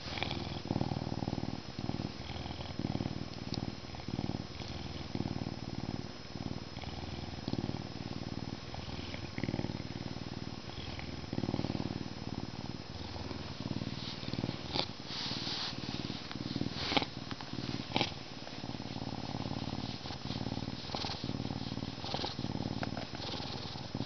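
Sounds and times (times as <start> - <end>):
lynx purring: 13.0 - 24.0
fur rustling under hand: 14.0 - 17.0.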